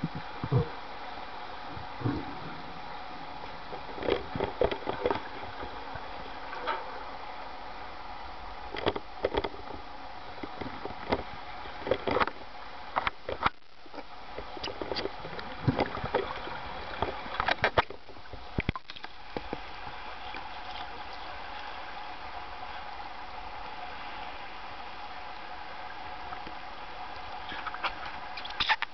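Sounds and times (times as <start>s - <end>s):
sharp underwater clicks and knocks: 3.7s - 5.8s, 8.7s - 9.8s, 10.4s - 20.9s, 27.3s - 28.9s.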